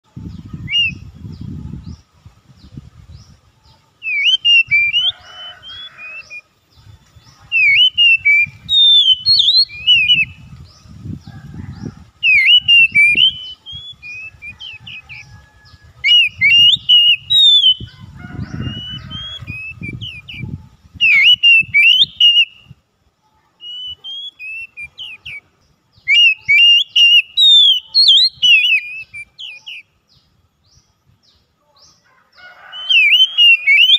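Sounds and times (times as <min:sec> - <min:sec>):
bird singing whistled phrases: 0:00.4 - 0:01.1, 0:04.0 - 0:06.4, 0:07.5 - 0:10.5, 0:12.2 - 0:15.3, 0:16.0 - 0:22.7, 0:23.6 - 0:29.9, 0:32.7 - 0:33.9.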